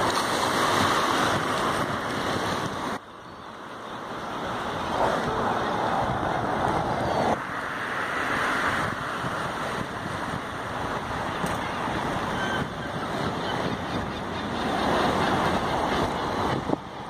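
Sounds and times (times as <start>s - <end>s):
waves washing against rocks: 0.0s - 3.0s
wind buffeting microphone: 0.0s - 3.0s, 4.2s - 7.4s, 8.6s - 17.0s.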